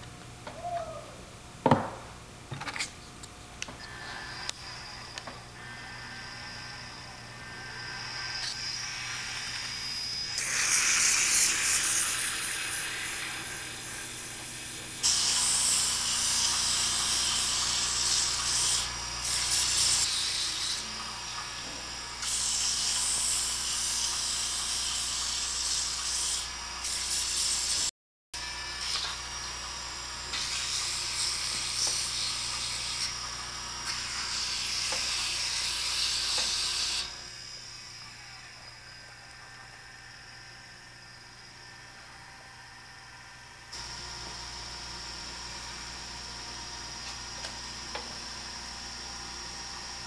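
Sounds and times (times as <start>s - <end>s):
lathe motor humming: 3.9s - 26.9s, 39.9s - 50.0s
sandpaper hissing on spinning wood: 5.6s - 27.9s, 30.3s - 37.1s.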